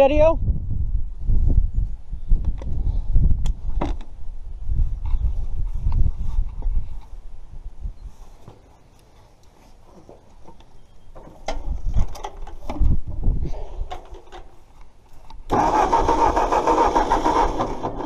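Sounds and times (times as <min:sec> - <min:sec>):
tractor engine cranking: 0:15.5 - 0:18.0
tractor engine running: 0:15.5 - 0:18.0.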